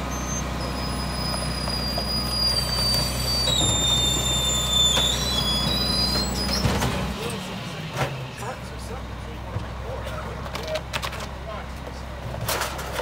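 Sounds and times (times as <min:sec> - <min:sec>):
hydraulic packer squeal: 0:00.0 - 0:07.3
garbage truck diesel engine: 0:00.0 - 0:13.0.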